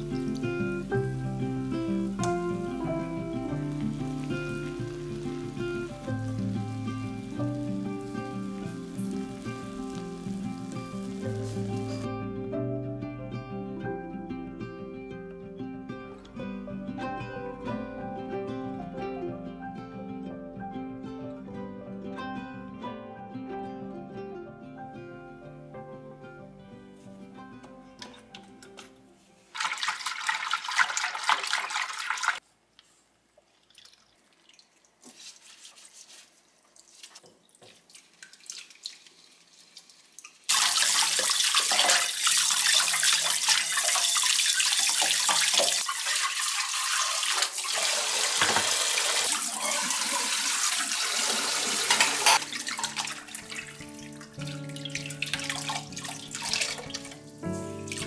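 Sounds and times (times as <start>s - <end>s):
tap water running into sink: 0.0s - 12.0s, 29.6s - 32.4s, 37.0s - 58.0s.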